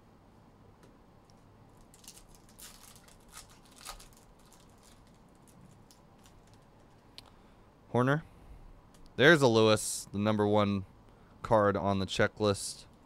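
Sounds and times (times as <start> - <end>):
foil wrapper crinkling: 1.8 - 7.0.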